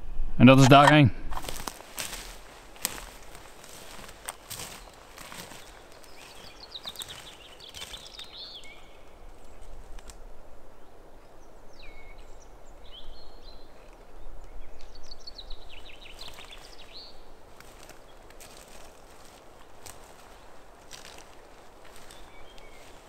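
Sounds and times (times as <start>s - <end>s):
songbirds trilling: 1.4s - 10.1s, 10.7s - 23.0s.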